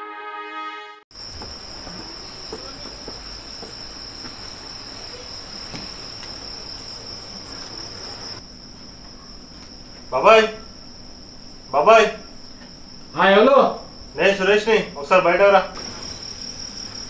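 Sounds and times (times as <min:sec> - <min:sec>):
crickets trilling: 0:01.1 - 0:17.0.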